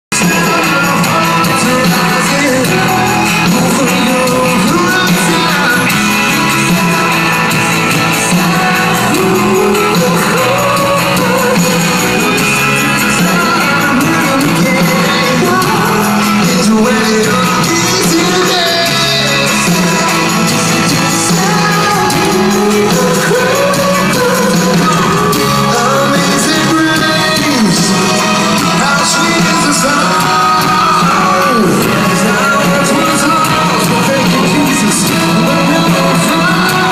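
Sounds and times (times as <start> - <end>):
drums: 0.1 - 36.9
electric guitar: 0.1 - 36.9
lead singer singing: 0.1 - 36.9
rock band playing loud: 0.1 - 36.9.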